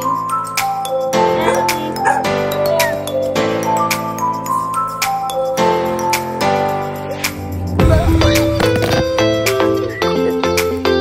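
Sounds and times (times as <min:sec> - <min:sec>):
plucked melody over a beat: 0:07.1 - 0:09.9.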